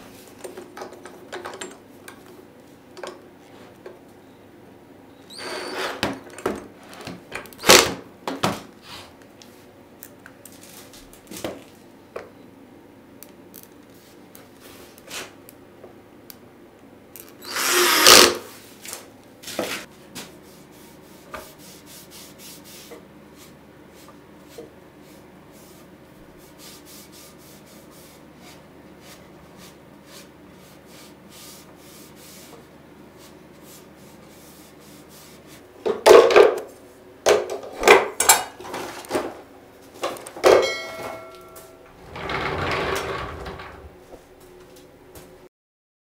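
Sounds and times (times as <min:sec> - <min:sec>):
loud knocks and metallic clinks: 0:40.4 - 0:41.9
short rumbling noise: 0:41.9 - 0:44.0.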